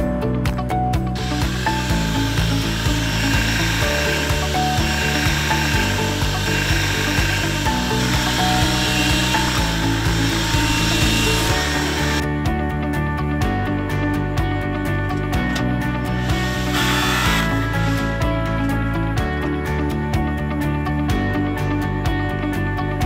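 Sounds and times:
background music with beat: 0:00.0 - 0:23.0
vacuum motor whine: 0:01.2 - 0:12.2, 0:15.5 - 0:18.7.

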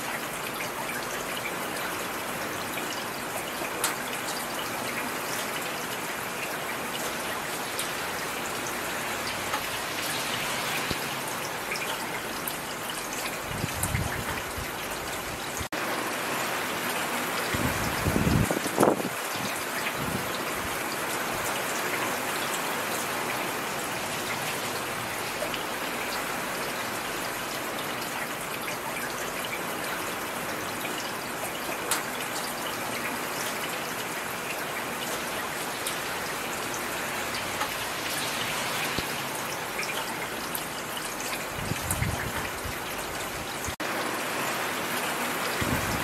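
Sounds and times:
steady rain falling: 0:00.0 - 0:46.0
raindrop ticks: 0:03.6 - 0:05.8, 0:09.2 - 0:10.2, 0:30.9 - 0:32.5, 0:37.2 - 0:38.2.

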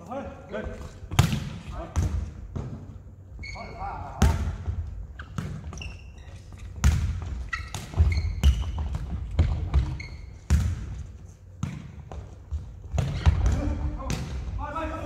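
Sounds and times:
short high squeaks: 0:03.4 - 0:03.9, 0:05.2 - 0:06.8, 0:07.5 - 0:08.8, 0:09.9 - 0:10.4.

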